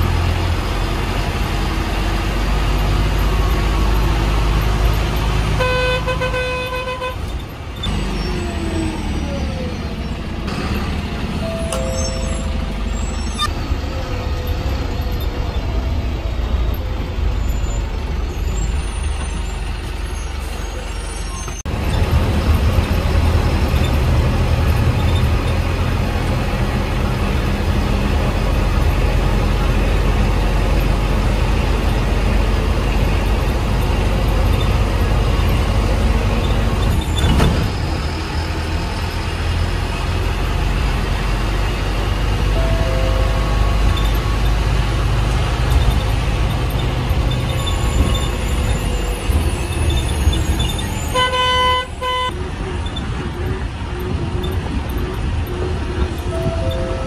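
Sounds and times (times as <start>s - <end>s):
bus engine rumbling: 0.0s - 57.0s
buses at bus stand: 0.0s - 57.0s
vehicle horn tooting: 5.6s - 7.3s, 51.1s - 52.3s.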